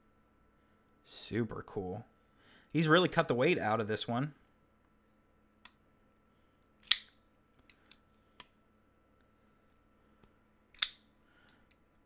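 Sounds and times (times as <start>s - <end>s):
folding knife clicks: 10.8s - 11.0s.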